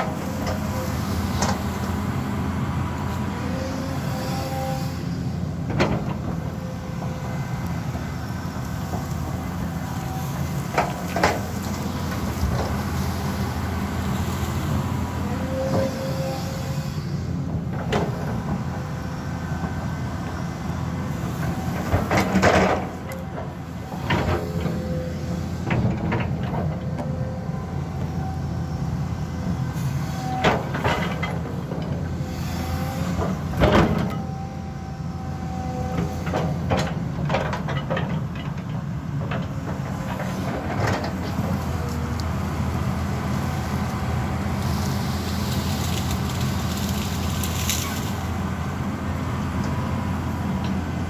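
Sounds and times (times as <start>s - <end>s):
excavator diesel engine: 0.0s - 51.0s
hydraulic whines: 14.7s - 20.4s.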